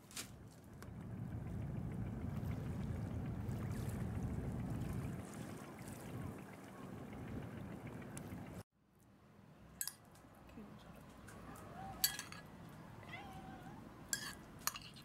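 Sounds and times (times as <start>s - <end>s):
cat meowing: 11.5s - 12.2s, 13.0s - 13.8s
metal spoon clinking ceramic bowl: 12.0s - 12.5s, 14.1s - 15.0s.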